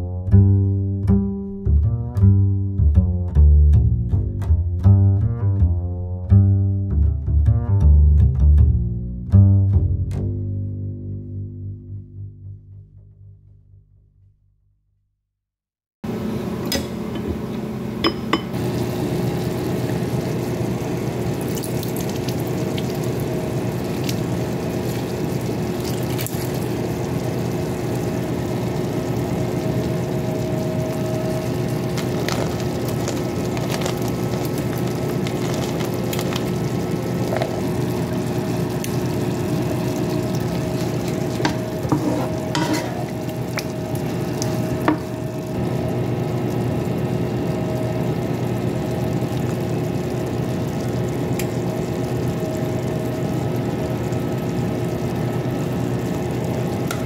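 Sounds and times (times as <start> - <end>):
vegetables sizzling in a pan: 18.5 - 57.0.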